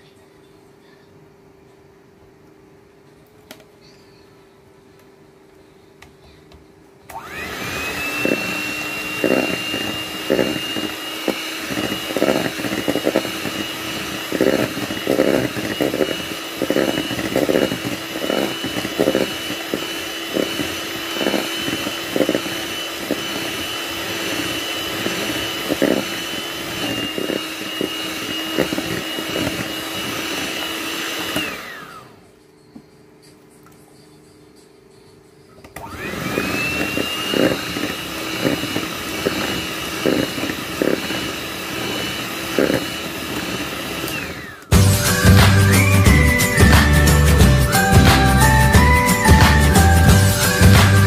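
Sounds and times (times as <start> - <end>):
electric hand mixer whining: 7.1 - 32.2, 35.8 - 51.0.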